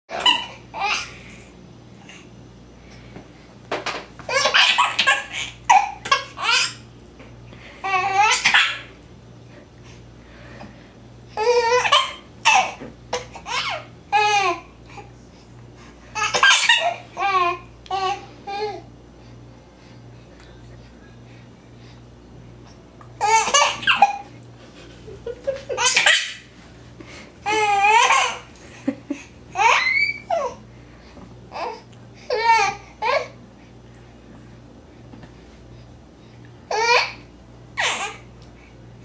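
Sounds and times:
baby laughing: 0.1 - 1.1, 4.3 - 6.8, 7.8 - 8.9, 11.4 - 12.8, 13.4 - 14.6, 16.2 - 18.7, 23.2 - 24.3, 25.0 - 26.5, 27.4 - 30.6.

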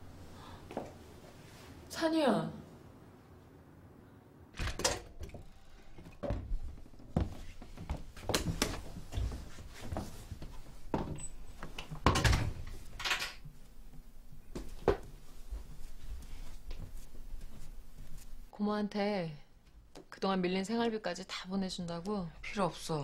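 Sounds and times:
door opening: 4.6 - 6.8
footsteps on wooden floor: 6.0 - 12.0, 13.9 - 18.4.

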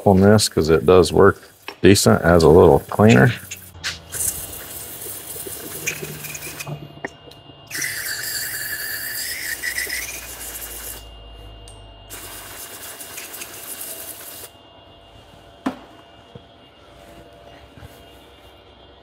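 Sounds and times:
aerosol can spraying: 2.2 - 6.6.

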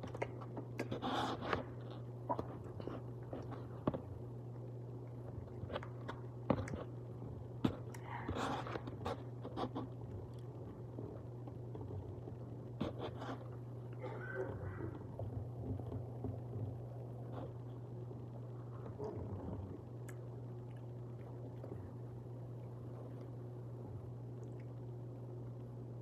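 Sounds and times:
steady low hum: 0.0 - 26.0
chewing and mouth sounds: 18.8 - 24.9.

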